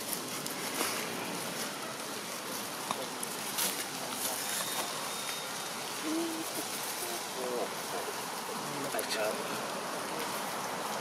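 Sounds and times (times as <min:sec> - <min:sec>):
outdoor background hiss: 0:00.0 - 0:11.0
faint high chirp: 0:04.5 - 0:05.7.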